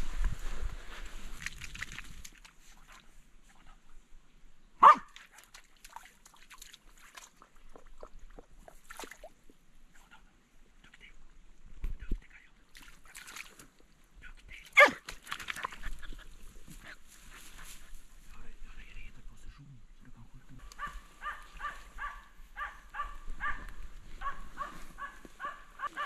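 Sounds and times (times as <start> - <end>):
dog barking: 4.8 - 5.2, 14.8 - 15.0, 20.8 - 26.0.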